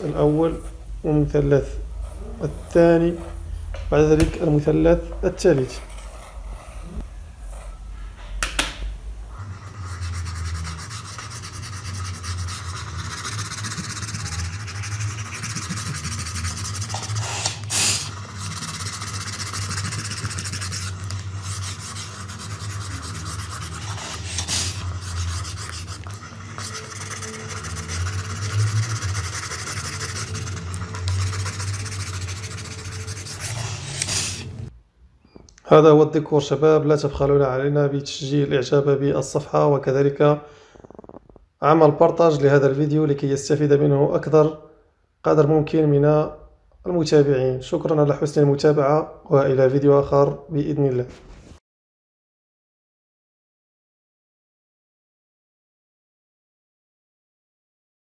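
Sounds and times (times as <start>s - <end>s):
eraser rubbing on paper: 1.6s - 3.5s, 5.3s - 7.9s, 9.3s - 34.7s.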